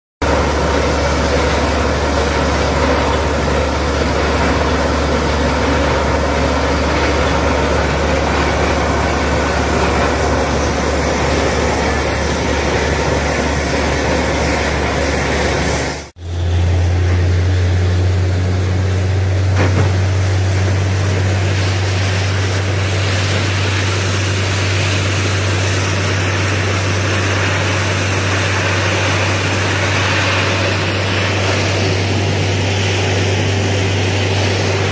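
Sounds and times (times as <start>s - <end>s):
deep engine and compressor drone: 0.2s - 34.9s
air hissing from bore: 20.8s - 34.9s.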